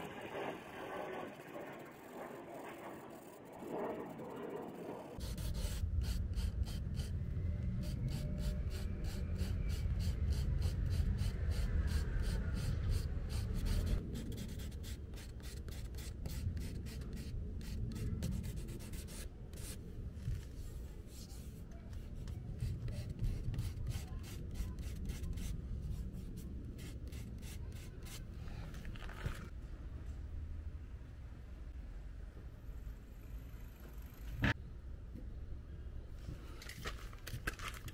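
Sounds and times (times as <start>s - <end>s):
steady low rumble: 0.0s - 36.4s
sanding sponge rasping on plastic: 22.2s - 28.2s.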